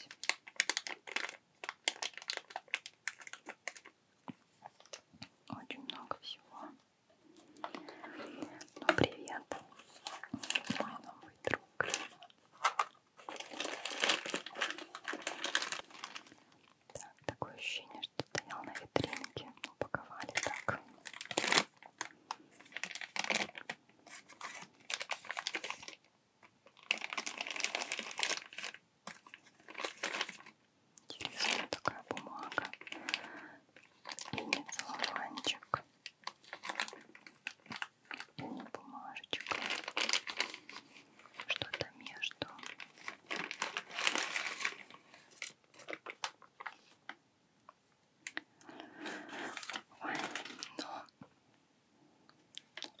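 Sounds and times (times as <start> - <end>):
packaging wrap crinkling: 0.0 - 4.0, 7.4 - 47.2, 48.2 - 51.1, 52.6 - 53.0.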